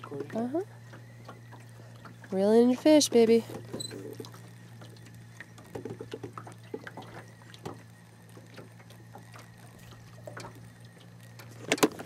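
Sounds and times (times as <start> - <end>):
ripples lapping against boat: 0.0 - 12.0
steady low hum: 0.0 - 12.0.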